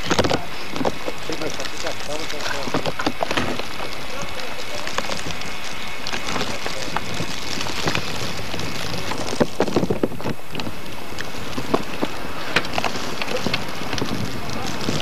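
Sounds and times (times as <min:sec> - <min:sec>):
wind on microphone: 0:00.0 - 0:15.0.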